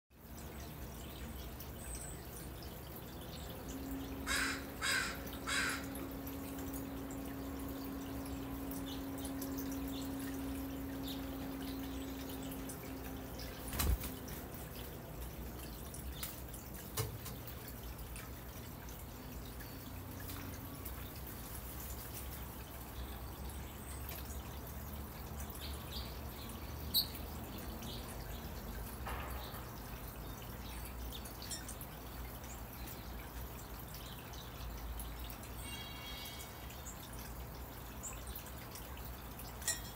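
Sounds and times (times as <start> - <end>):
steady low hum: 2.2 - 16.8
crow cawing: 4.2 - 6.0.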